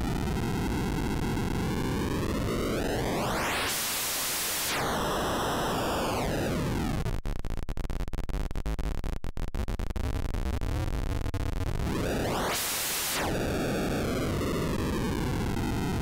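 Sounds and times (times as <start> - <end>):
digital noise generator sweeping: 2.6 - 6.6, 11.8 - 14.0.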